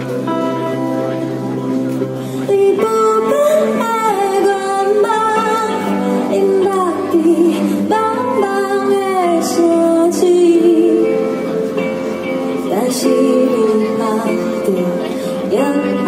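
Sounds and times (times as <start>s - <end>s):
acoustic guitar: 0.0s - 16.0s
woman singing: 2.4s - 11.4s, 12.6s - 16.0s.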